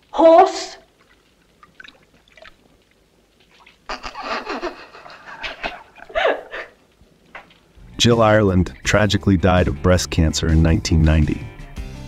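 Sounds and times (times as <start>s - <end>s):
woman laughing: 3.9s - 6.8s.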